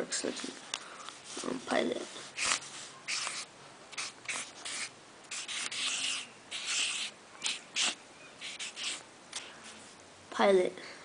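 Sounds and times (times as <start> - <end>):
marker scratching on paper: 1.2 - 9.9.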